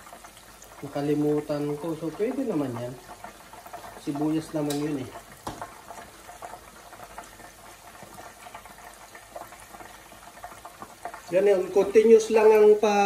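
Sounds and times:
deep-frying oil sizzle: 0.0s - 13.0s
oil pops and crackles: 2.9s - 12.0s.

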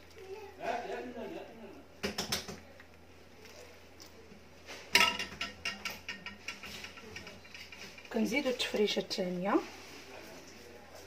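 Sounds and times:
ladle clanking against pot: 4.9s - 8.1s.

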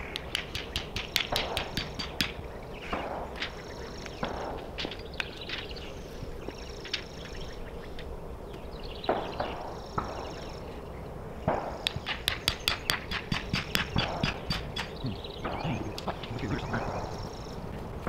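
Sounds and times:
sharp knocks of stake tapping: 0.1s - 3.5s, 11.5s - 16.2s.

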